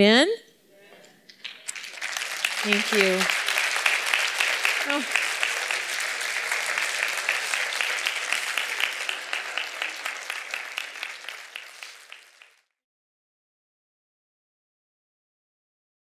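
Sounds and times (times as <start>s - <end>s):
audience applauding: 1.3s - 12.7s.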